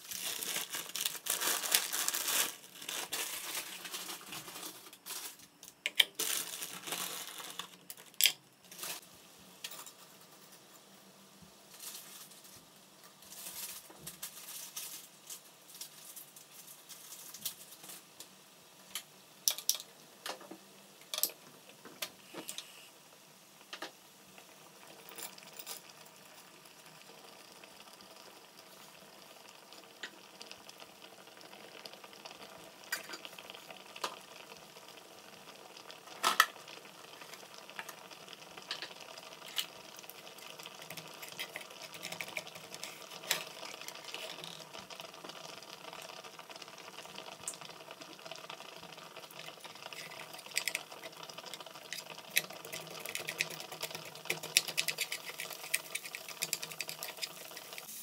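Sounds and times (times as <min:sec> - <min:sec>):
vegetables sizzling in a frying pan: 0:00.0 - 0:58.0
water boiling in a pot: 0:00.0 - 0:58.0
chopsticks scraping in a pan: 0:40.6 - 0:44.6, 0:49.8 - 0:58.0.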